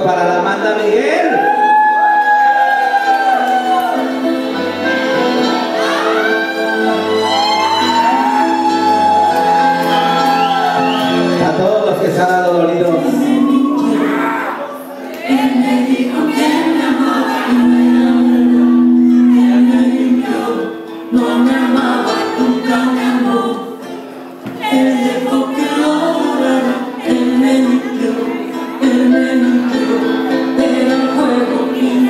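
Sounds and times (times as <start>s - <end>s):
ballad with lead vocal: 12.9s - 32.0s.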